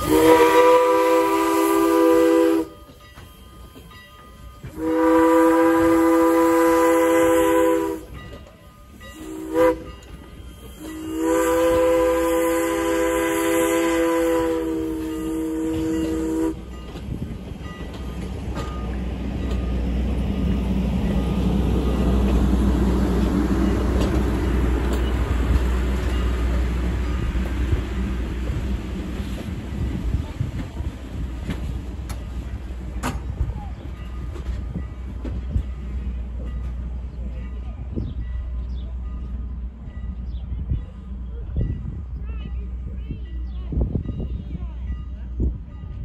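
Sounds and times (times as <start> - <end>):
steam locomotive whistle: 0.0 - 3.8, 4.6 - 8.3, 9.0 - 16.7
train rumbling past: 0.0 - 46.0.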